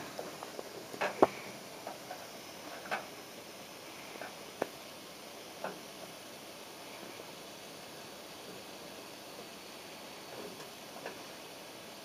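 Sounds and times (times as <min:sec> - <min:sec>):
soldering clicks and crackling: 0:00.0 - 0:03.2, 0:04.2 - 0:04.8.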